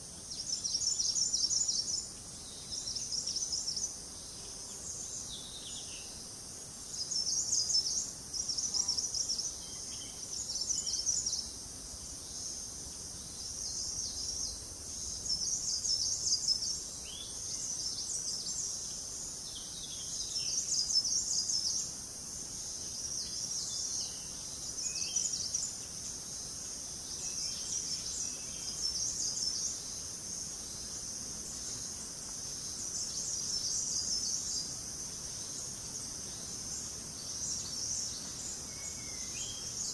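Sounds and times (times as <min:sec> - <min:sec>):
insects buzzing: 0:00.0 - 0:39.9
faint bird chirps: 0:06.8 - 0:11.6, 0:36.3 - 0:39.9.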